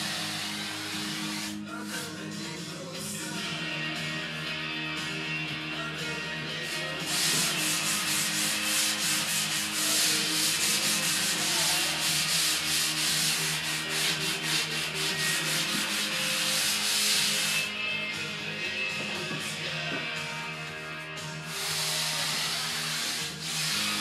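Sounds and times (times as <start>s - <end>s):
sanding block scraping foam: 0.0s - 2.2s, 6.6s - 17.7s, 21.4s - 24.0s.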